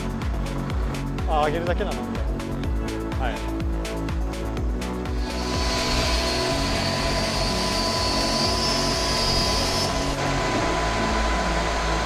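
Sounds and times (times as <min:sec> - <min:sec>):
steady low hum: 0:02.3 - 0:12.0
electric grinder whine: 0:05.1 - 0:12.0.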